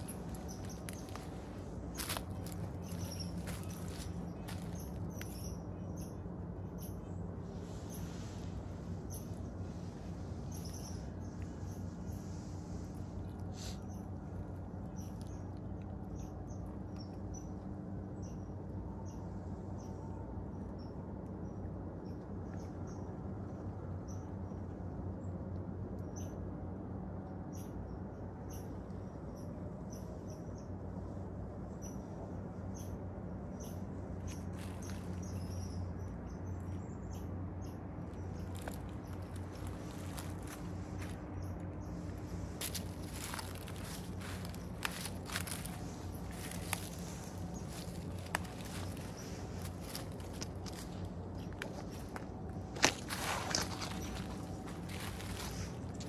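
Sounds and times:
small bird chirping: 0:00.0 - 0:07.2, 0:32.8 - 0:56.0
low background hum: 0:00.0 - 0:56.0.

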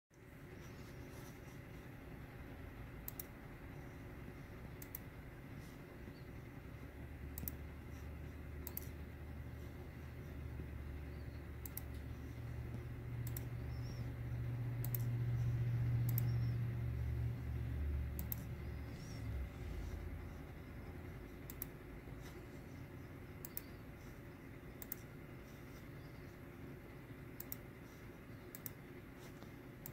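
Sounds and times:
low hum: 0:00.1 - 0:29.9
computer mouse clicks: 0:03.0 - 0:03.8, 0:04.7 - 0:05.2, 0:07.2 - 0:09.1, 0:11.1 - 0:14.1, 0:14.7 - 0:16.6, 0:18.0 - 0:19.2, 0:20.6 - 0:22.8, 0:23.4 - 0:26.2, 0:27.3 - 0:29.9.

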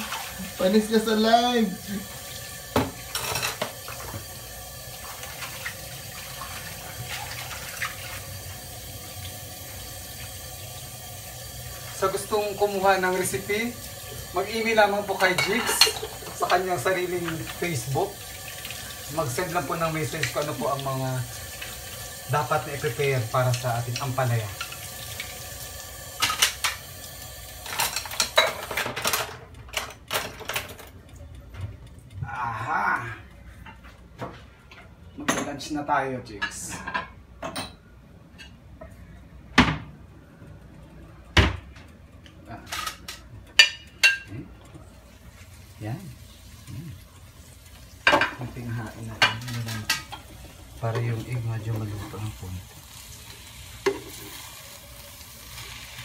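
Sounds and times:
dishes clinking in a metal sink: 0:02.7 - 0:04.3, 0:15.0 - 0:18.0, 0:26.2 - 0:26.7, 0:27.6 - 0:31.7, 0:33.6 - 0:35.6, 0:36.4 - 0:38.6, 0:42.6 - 0:44.4, 0:48.0 - 0:52.3, 0:53.8 - 0:54.4.

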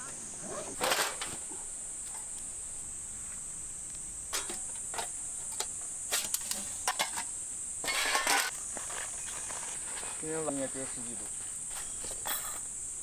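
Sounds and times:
insects droning: 0:00.0 - 0:13.0
metal panels clinking: 0:00.7 - 0:01.4, 0:04.3 - 0:07.2.

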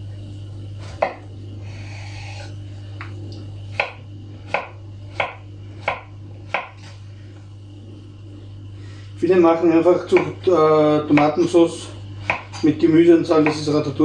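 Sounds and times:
steady low hum: 0:00.0 - 0:14.0
knife chopping on wooden board: 0:00.8 - 0:01.2, 0:03.7 - 0:06.9, 0:10.1 - 0:10.4, 0:11.1 - 0:11.4, 0:12.2 - 0:12.7, 0:13.4 - 0:13.7.

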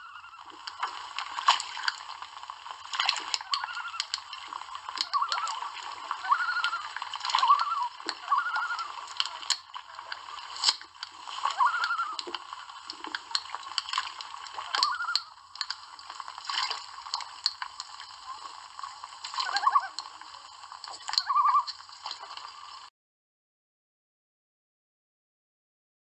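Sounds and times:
loons tremolo calls: 0:00.0 - 0:00.8, 0:03.3 - 0:10.5, 0:11.4 - 0:13.4, 0:14.5 - 0:15.5, 0:19.3 - 0:20.1, 0:21.1 - 0:21.8
wings splashing water: 0:00.0 - 0:18.4, 0:19.1 - 0:20.1, 0:21.0 - 0:22.8.

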